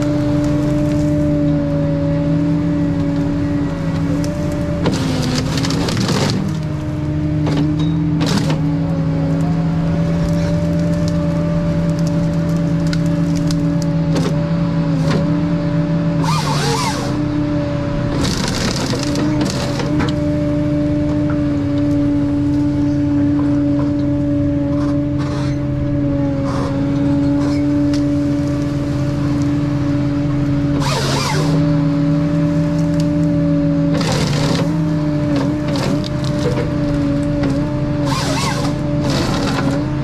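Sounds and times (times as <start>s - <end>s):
diesel engine running: 0.0s - 40.0s
harvester head cutting wood: 4.0s - 8.7s, 16.2s - 17.2s, 18.1s - 20.3s, 26.4s - 28.1s, 30.7s - 31.8s, 32.4s - 40.0s.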